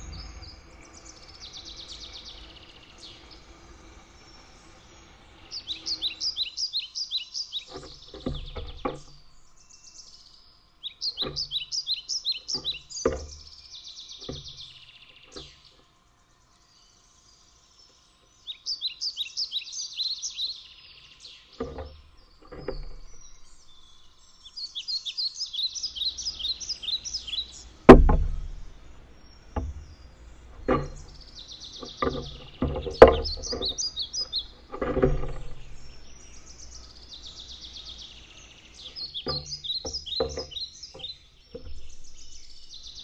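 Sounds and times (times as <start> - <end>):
bird chirping: 0.0 - 43.0
bird bill pecking on wood: 7.4 - 9.5, 11.0 - 13.5, 14.1 - 15.6, 21.4 - 24.2, 25.6 - 43.0.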